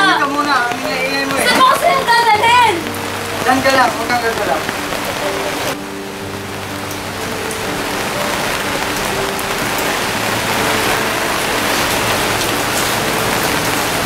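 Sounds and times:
heavy rain pouring: 0:00.0 - 0:14.0.

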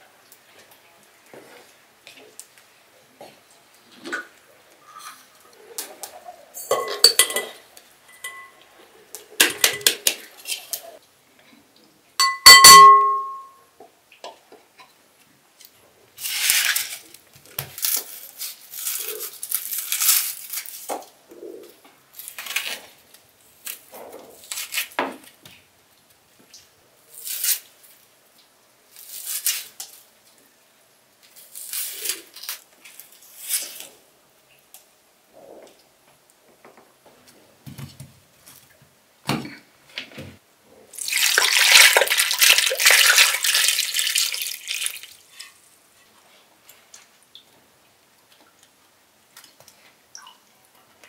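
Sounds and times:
glass bowls clinking: 0:06.6 - 0:08.6, 0:12.2 - 0:13.6
knife scraping onion skin: 0:17.8 - 0:20.9, 0:22.2 - 0:22.9, 0:24.4 - 0:25.0, 0:27.1 - 0:27.7, 0:29.0 - 0:30.0, 0:31.4 - 0:33.9.

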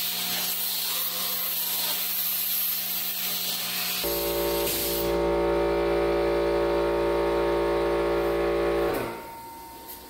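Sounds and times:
plasma cutter humming: 0:00.0 - 0:10.0.

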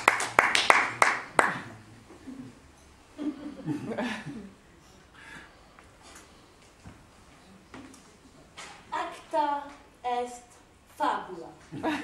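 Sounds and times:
audience clapping in rhythm: 0:00.0 - 0:01.8.

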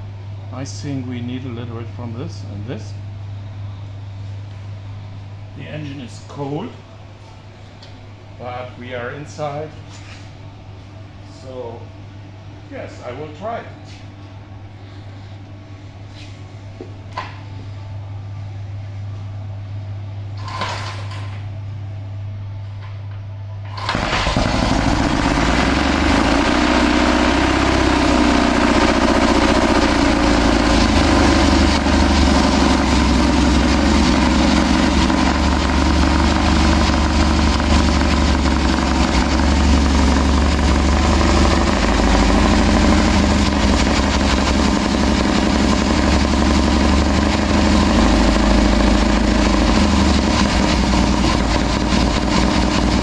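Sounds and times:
motorcycle engine idling: 0:24.4 - 0:53.0.

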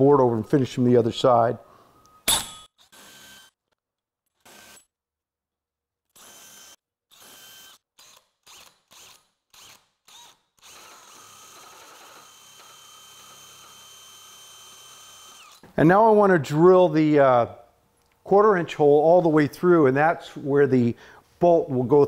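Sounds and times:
cordless drill with hole saw: 0:02.8 - 0:03.6, 0:04.4 - 0:04.9, 0:06.1 - 0:15.7.

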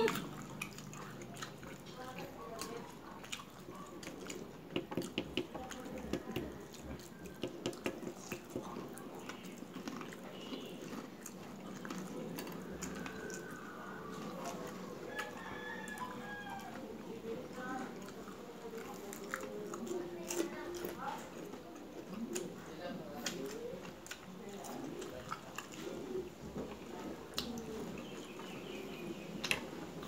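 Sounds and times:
wet chewing and lip-smacking: 0:00.0 - 0:30.0.

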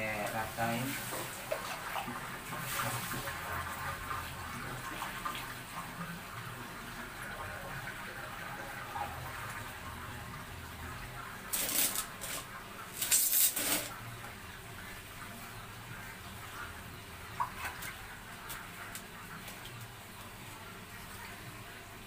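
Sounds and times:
water trickling onto feed: 0:14.8 - 0:21.5.

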